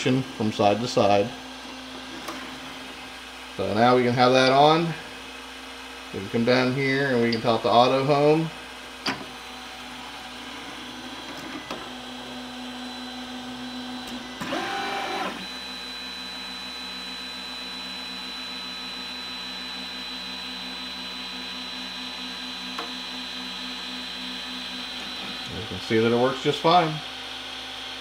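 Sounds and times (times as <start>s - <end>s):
cooling fans whirring: 0.0s - 28.0s
stepper motor whine: 6.6s - 28.0s
pulsing motor hum: 9.2s - 26.3s.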